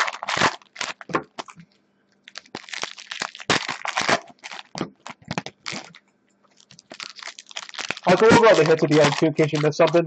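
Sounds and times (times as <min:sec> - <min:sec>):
foil wrapper crackling: 0:00.0 - 0:10.0.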